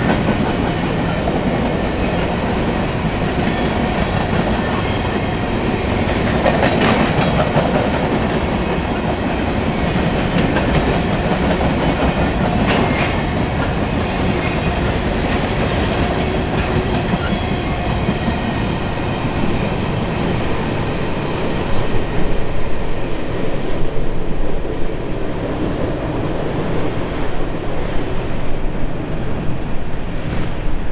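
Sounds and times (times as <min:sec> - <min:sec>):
freight train rolling past: 0:00.0 - 0:30.9.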